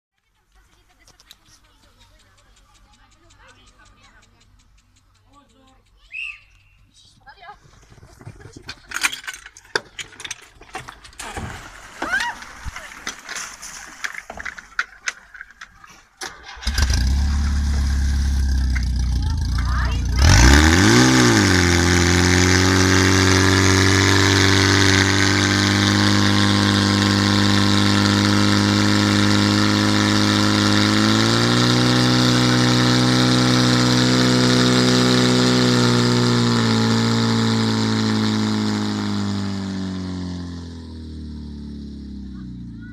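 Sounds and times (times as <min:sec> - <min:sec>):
pump petrol engine running: 0:16.2 - 0:42.9.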